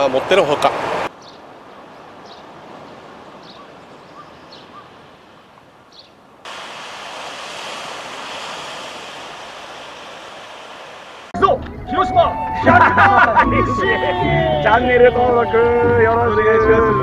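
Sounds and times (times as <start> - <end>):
outdoor hiss: 4.6 - 11.4
surf washing on beach: 6.5 - 11.4.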